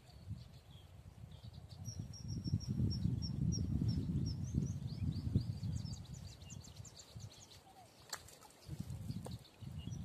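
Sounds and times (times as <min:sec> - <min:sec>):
small bird chirping: 0:00.0 - 0:10.0
low rumble on microphone: 0:00.2 - 0:07.3.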